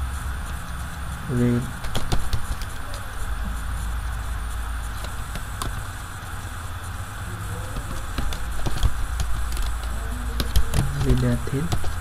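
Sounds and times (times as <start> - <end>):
low electrical hum and hiss: 0.0 - 12.0
keyboard keys clicking: 1.8 - 3.0, 7.7 - 12.0.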